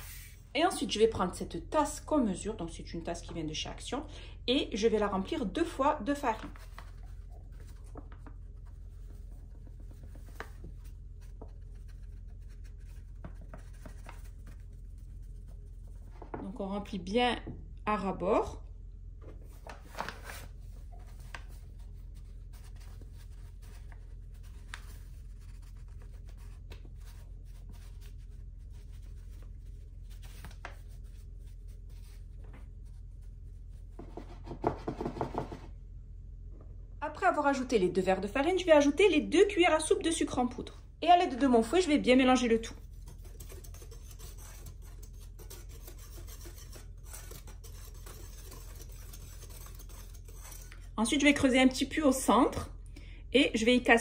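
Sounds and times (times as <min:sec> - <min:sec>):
steady low hum: 0:00.0 - 0:54.0
wire whisk stirring flour in glass bowl: 0:42.4 - 0:51.8.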